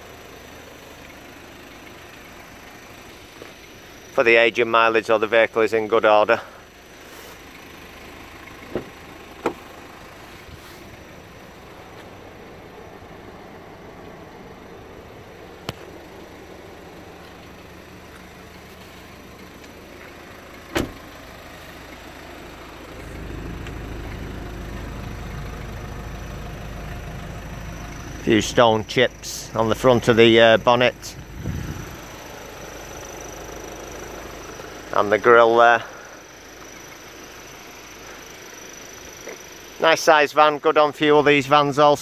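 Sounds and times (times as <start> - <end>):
diesel engine idling: 0.0 - 42.0.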